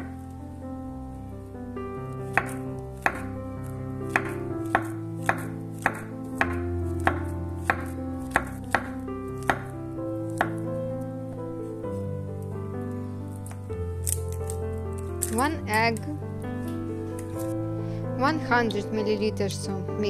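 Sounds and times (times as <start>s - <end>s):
soft background music: 0.0s - 20.0s.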